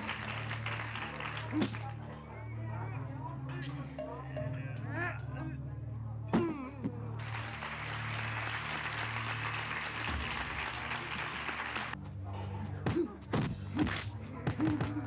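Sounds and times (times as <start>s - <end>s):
crowd noise: 0.0s - 13.3s
grunts: 12.3s - 15.0s.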